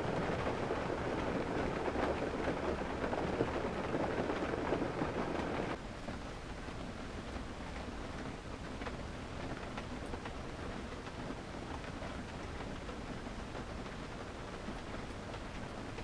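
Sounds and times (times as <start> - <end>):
rain hissing on a car: 0.0 - 16.0
raindrops ticking on car body: 0.0 - 16.0.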